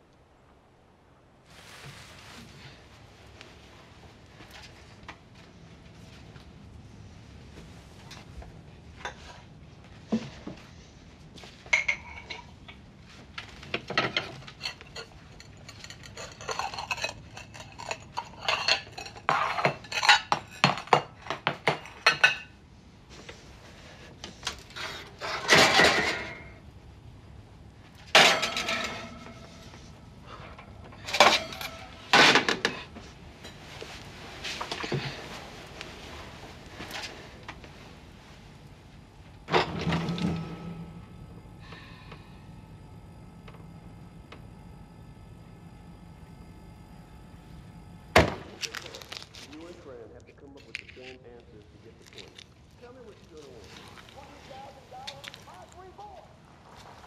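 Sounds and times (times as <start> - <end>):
dishes and cutlery clattering: 11.7 - 12.7, 13.8 - 22.5, 25.2 - 26.5, 28.2 - 29.8, 31.0 - 33.7.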